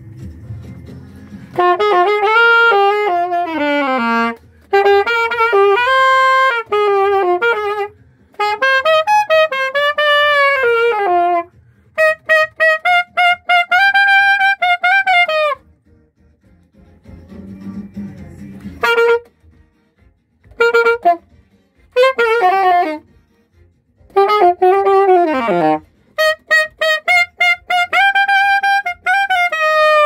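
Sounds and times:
saxophone solo melody: 0:01.5 - 0:15.6, 0:18.8 - 0:19.3, 0:20.5 - 0:21.2, 0:21.9 - 0:23.0, 0:24.1 - 0:30.0.

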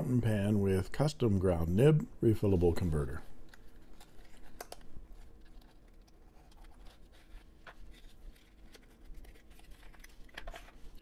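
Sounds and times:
light clicks and scrapes: 0:03.4 - 0:11.0.

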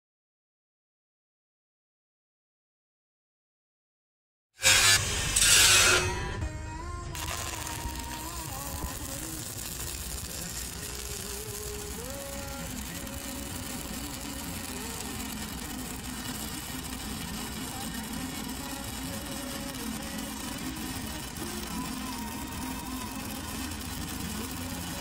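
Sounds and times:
welding arc crackling buzz: 0:04.6 - 0:06.5, 0:07.1 - 0:25.0.

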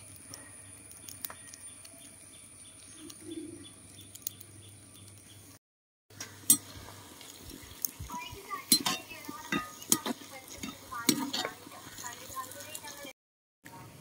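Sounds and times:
rice boiling: 0:00.0 - 0:13.2
metal spoon scraping a pan: 0:08.6 - 0:13.0.

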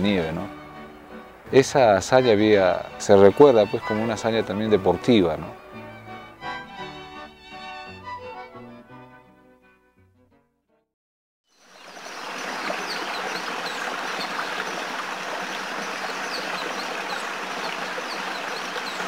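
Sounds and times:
rushing stream water: 0:00.0 - 0:07.5, 0:11.5 - 0:19.0.

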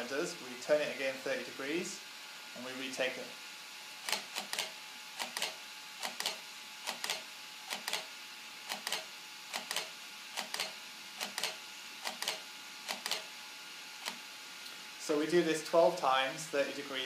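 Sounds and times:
faint steady hum: 0:00.0 - 0:17.0
camera shutter double clicks: 0:04.0 - 0:08.1, 0:08.7 - 0:13.3.

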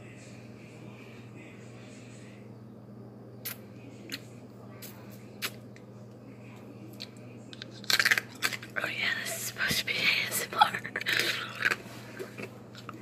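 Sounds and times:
steady low hum: 0:00.0 - 0:13.0
ice cracking in mouth: 0:07.5 - 0:08.7.

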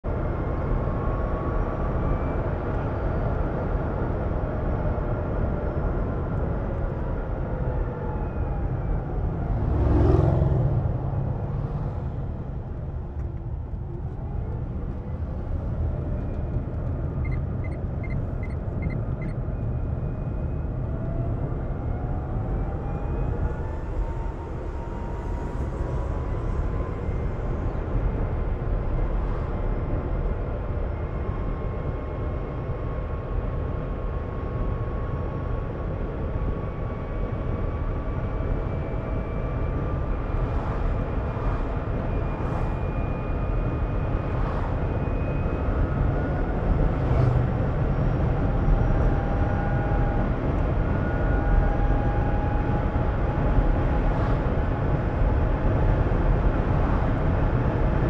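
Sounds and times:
road and tyre rumble: 0:00.0 - 0:58.0
short beeps: 0:17.2 - 0:19.4.

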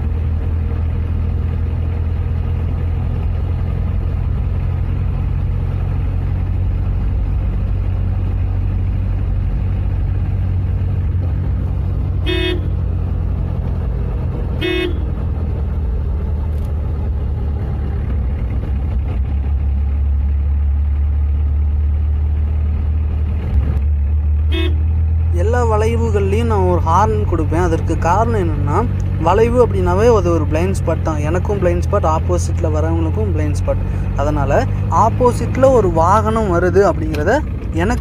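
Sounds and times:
car engine running: 0:00.0 - 0:38.0
car horn toots: 0:12.2 - 0:12.8, 0:14.6 - 0:15.2, 0:24.5 - 0:24.8.

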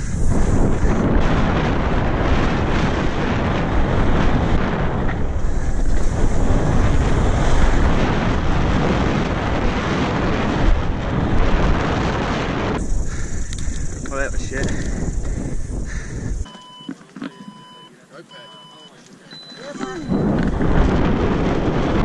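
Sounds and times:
wind rushing over microphone: 0:00.0 - 0:16.5, 0:19.8 - 0:22.0
bike rattling: 0:00.0 - 0:17.5.

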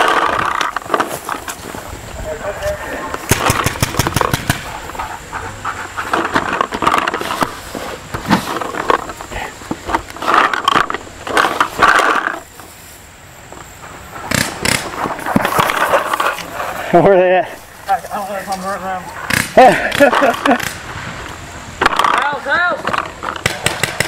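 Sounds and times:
gear rustling and scraping on grass: 0:00.0 - 0:19.4
paintball markers firing: 0:03.3 - 0:04.7, 0:14.3 - 0:15.8, 0:23.0 - 0:24.0.

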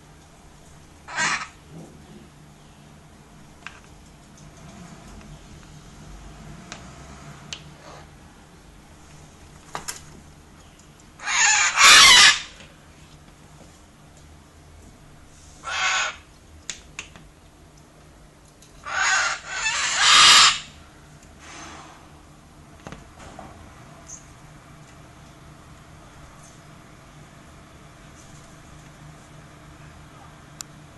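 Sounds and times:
cockatoos screeching: 0:01.1 - 0:01.6, 0:11.2 - 0:12.6, 0:15.6 - 0:16.2, 0:18.8 - 0:20.8.

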